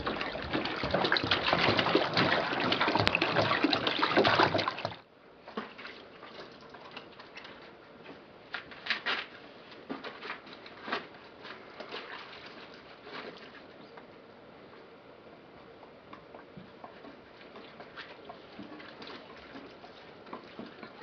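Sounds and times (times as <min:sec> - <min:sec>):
water splashing and dripping: 0:00.0 - 0:05.0, 0:16.1 - 0:21.0.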